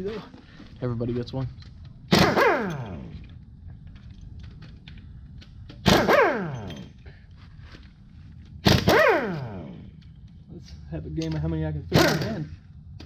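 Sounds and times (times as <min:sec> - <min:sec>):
impact wrench bursts: 0:02.1 - 0:03.2, 0:05.7 - 0:07.0, 0:08.6 - 0:09.9, 0:11.9 - 0:12.5.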